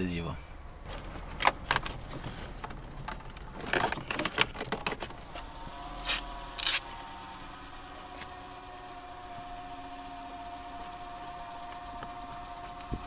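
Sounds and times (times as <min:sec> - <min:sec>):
cables rustling and scraping: 0:00.8 - 0:06.8
faint steady hum: 0:05.1 - 0:13.0
tape backing film ripping: 0:06.0 - 0:06.8.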